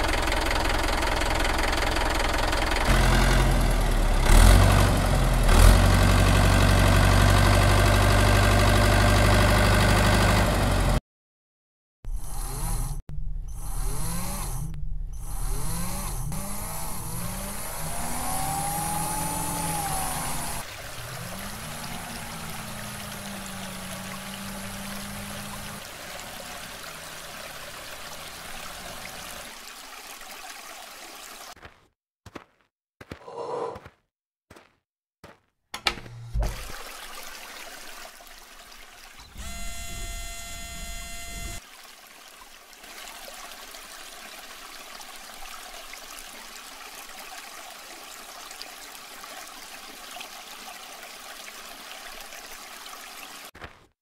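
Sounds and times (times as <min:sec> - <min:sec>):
small electric motor whirring: 0:12.1 - 0:25.8, 0:39.3 - 0:41.6.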